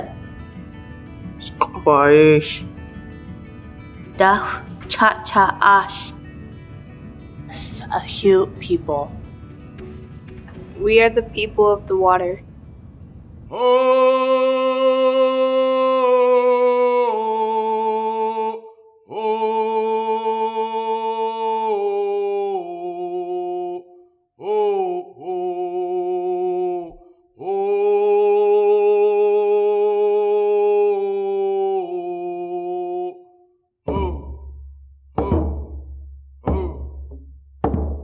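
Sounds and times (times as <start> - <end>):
person singing a chant: 13.5 - 34.5, 35.2 - 35.6, 36.5 - 37.0.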